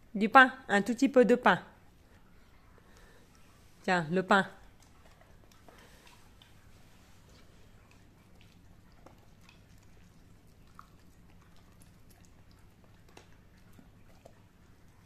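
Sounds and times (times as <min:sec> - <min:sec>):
low room hum: 0:00.0 - 0:15.0
dog chewing clicks: 0:07.3 - 0:15.0.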